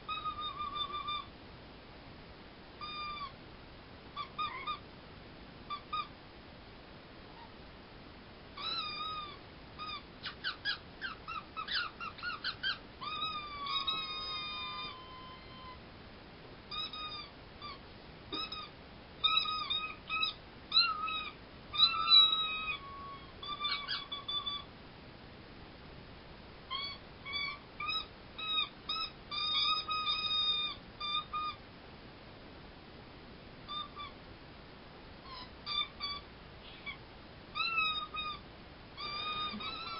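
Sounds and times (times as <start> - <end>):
squeaker toys squeaking: 0.1 - 1.3, 2.8 - 3.4, 8.6 - 15.8, 16.7 - 24.7, 26.7 - 31.6, 35.3 - 37.0, 37.6 - 38.4, 39.0 - 39.9.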